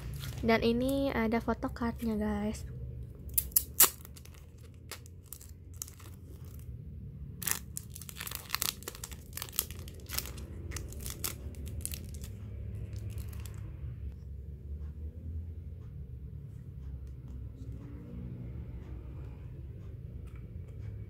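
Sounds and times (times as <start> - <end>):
plastic wrapper crinkling: 3.4 - 6.7, 7.4 - 13.6.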